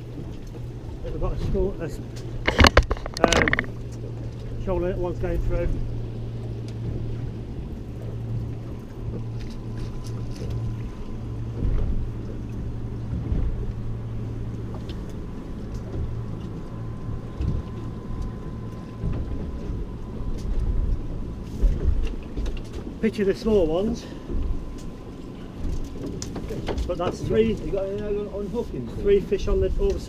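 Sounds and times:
sea water: 0:00.0 - 0:30.0
steady low hum: 0:00.0 - 0:30.0
wind: 0:00.0 - 0:30.0
fishing tackle clicks and knocks: 0:02.4 - 0:04.0.

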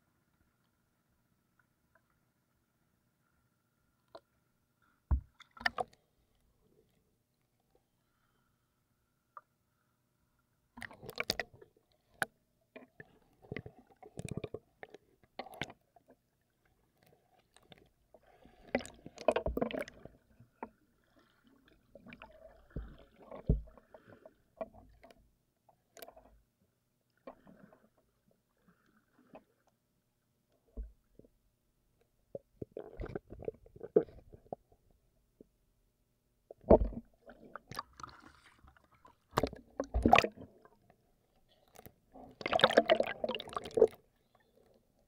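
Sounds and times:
water splashing and sloshing: 0:05.1 - 0:07.0, 0:10.8 - 0:25.2, 0:27.1 - 0:29.9, 0:32.3 - 0:34.7, 0:36.5 - 0:45.0.

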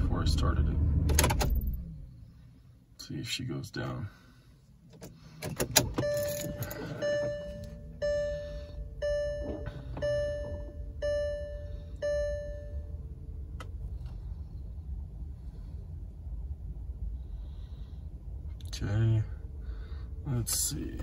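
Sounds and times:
steady low hum: 0:00.0 - 0:21.0
ignition key clicks: 0:04.9 - 0:08.2
dashboard warning chime: 0:05.9 - 0:13.0.

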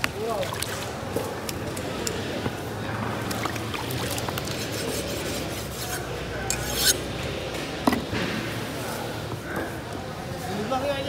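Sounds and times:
knife scraping fish scales: 0:04.4 - 0:07.1.

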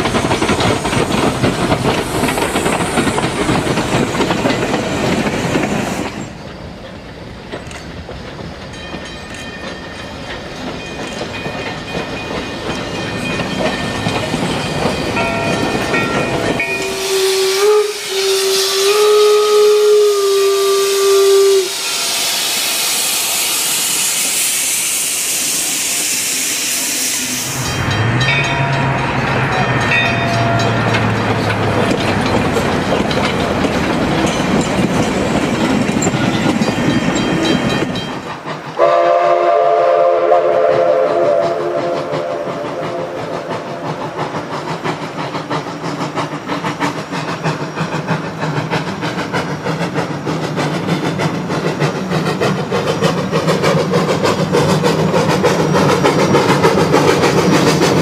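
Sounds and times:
steam locomotive running: 0:00.0 - 0:58.0
steam whistle chord: 0:16.6 - 0:23.3, 0:38.8 - 0:44.0.

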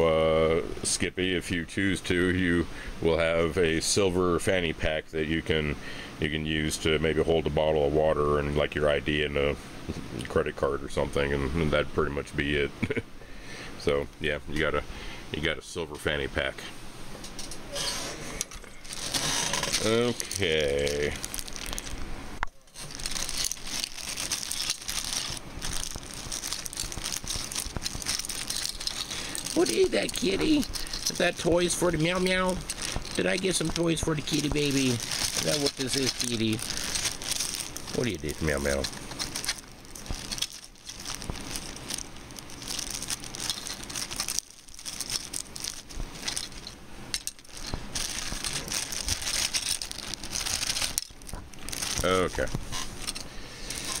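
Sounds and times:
plastic bag crinkling: 0:18.8 - 0:54.0.

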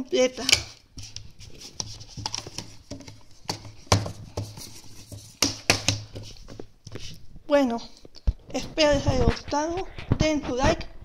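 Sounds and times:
plastic wrap rustling: 0:00.1 - 0:07.4.

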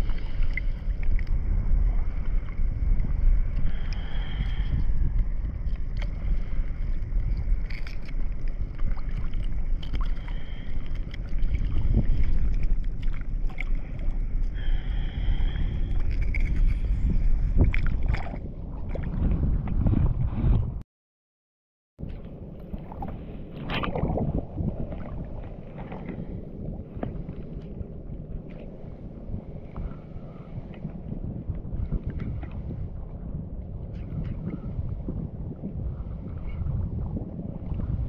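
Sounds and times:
wind buffeting microphone: 0:00.0 - 0:20.8, 0:22.0 - 0:38.0
water lapping: 0:05.5 - 0:20.6, 0:22.0 - 0:31.0.

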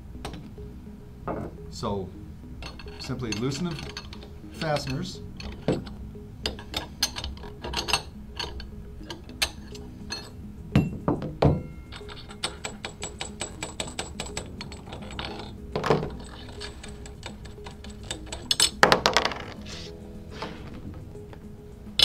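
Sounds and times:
faint background music: 0:00.0 - 0:22.0
metal nuts clicking and knocking: 0:02.6 - 0:19.7.

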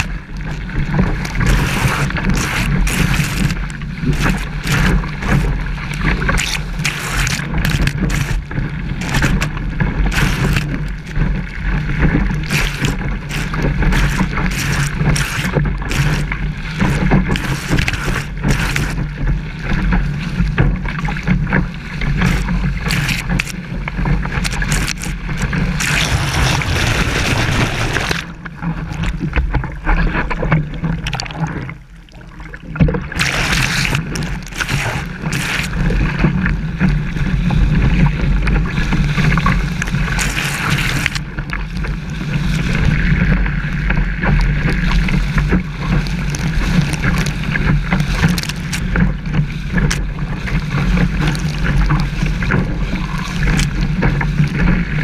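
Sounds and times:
wind buffeting camera housing: 0:00.0 - 0:11.4, 0:12.1 - 0:29.5
seawater rushing and splashing: 0:00.0 - 0:55.0
white water hiss: 0:33.1 - 0:35.9.

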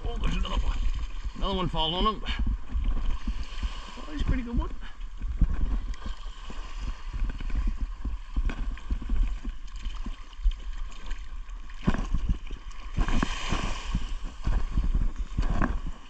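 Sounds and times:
low rumble: 0:00.0 - 0:10.2
water sloshing and splashing: 0:00.0 - 0:16.0.

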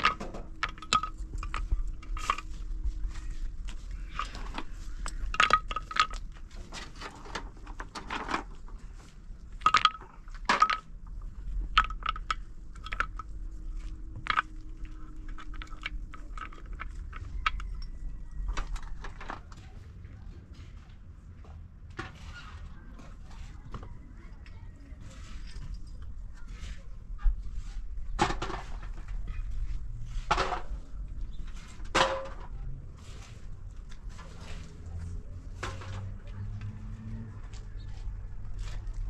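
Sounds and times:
concrete blocks clinking and knocking: 0:00.0 - 0:19.6, 0:25.1 - 0:36.8.

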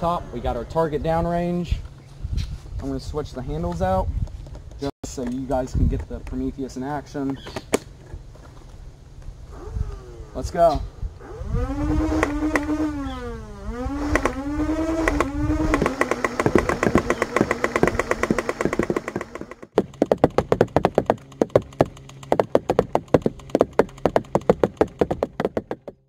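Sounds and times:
flywheel motors whining: 0:11.2 - 0:19.8
foam rounds firing: 0:14.0 - 0:20.0
rounds hitting cardboard box: 0:15.0 - 0:26.0.

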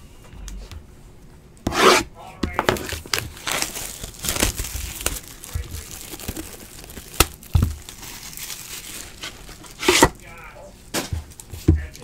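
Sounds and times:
wrapping crinkling and tearing: 0:02.7 - 0:10.0.

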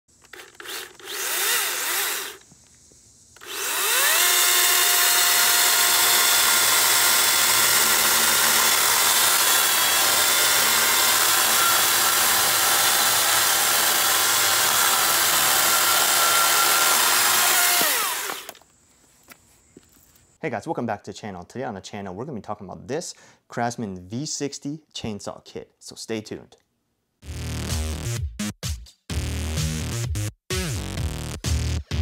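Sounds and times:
chainsaw revving: 0:00.4 - 0:02.4, 0:03.4 - 0:18.6.

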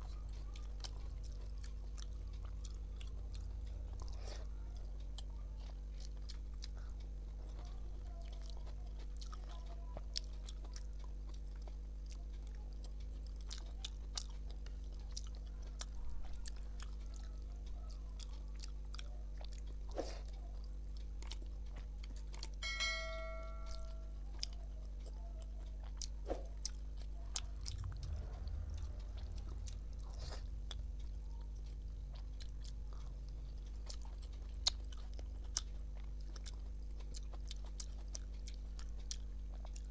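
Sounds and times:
person chewing: 0:00.0 - 0:22.7, 0:23.6 - 0:39.9
low electrical hum: 0:00.0 - 0:39.9
short ringing tone: 0:22.6 - 0:24.1.

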